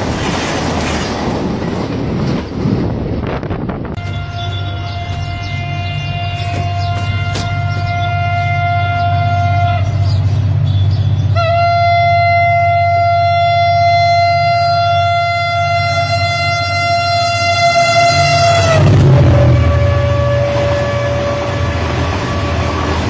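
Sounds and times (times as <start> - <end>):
locomotive horn blast: 4.0 - 23.0.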